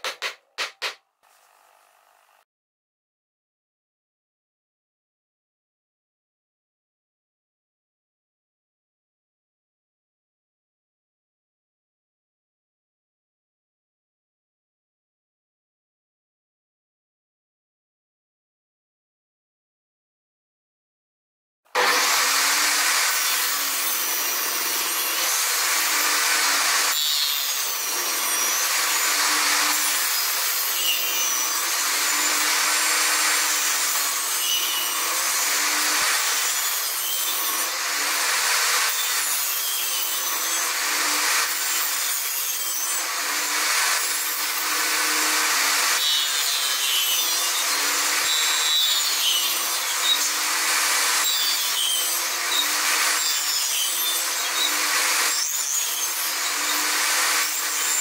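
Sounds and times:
table saw cutting wood: 0:00.0 - 0:02.5, 0:21.7 - 0:58.0.

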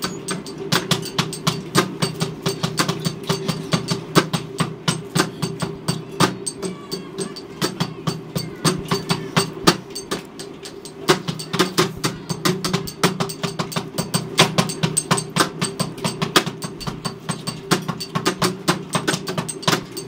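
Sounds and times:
sharp bright percussion strikes: 0:00.0 - 0:20.0.

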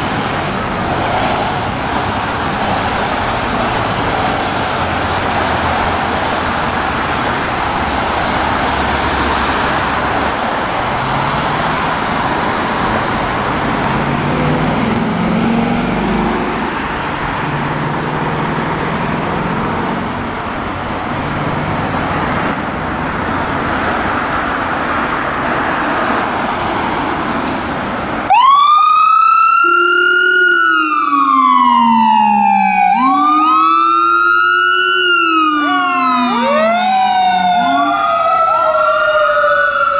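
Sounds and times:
fire engine siren wailing: 0:28.2 - 0:39.9.

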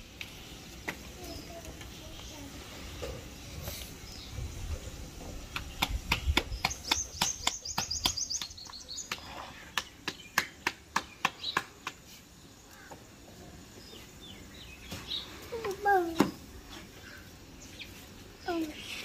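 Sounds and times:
hands slapping dough: 0:05.5 - 0:12.2.

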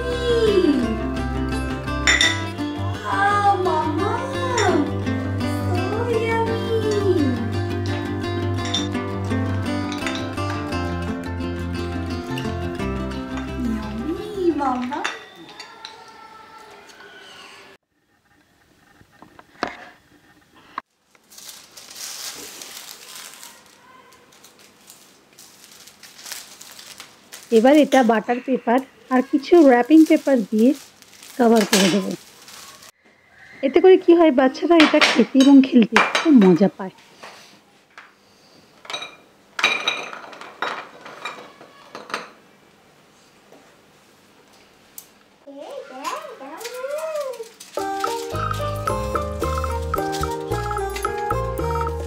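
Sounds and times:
paper and foil rustling: 0:20.9 - 0:33.0, 0:45.8 - 0:51.5.

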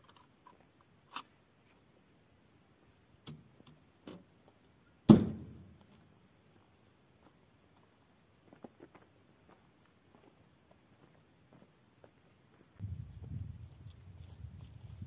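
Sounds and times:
truck door slamming: 0:05.1 - 0:05.6
footsteps on stony ground: 0:05.4 - 0:15.0.

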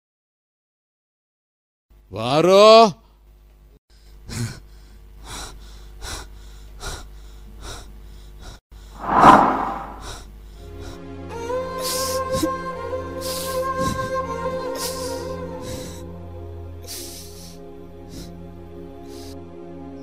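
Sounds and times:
gasping breaths: 0:04.0 - 0:09.0, 0:16.9 - 0:18.4.

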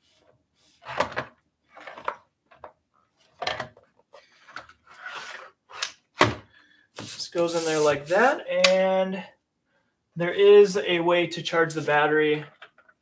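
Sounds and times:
scraping rub: 0:04.8 - 0:05.6, 0:07.0 - 0:08.4.

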